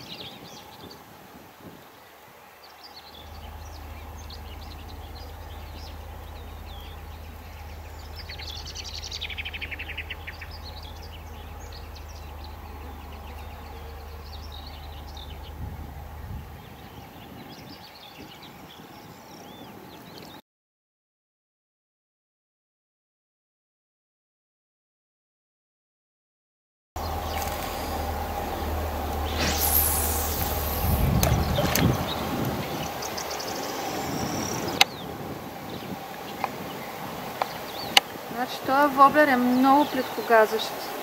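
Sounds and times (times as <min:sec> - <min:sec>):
low steady rumble: 0:00.0 - 0:19.6, 0:27.0 - 0:41.0
small birds chirping and singing: 0:00.0 - 0:20.4, 0:27.0 - 0:41.0
buzzy bird trill: 0:02.8 - 0:19.6, 0:27.0 - 0:41.0.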